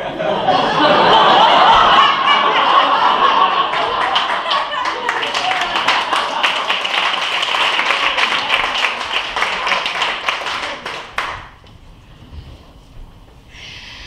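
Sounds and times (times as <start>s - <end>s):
audience applauding: 1.1s - 11.6s.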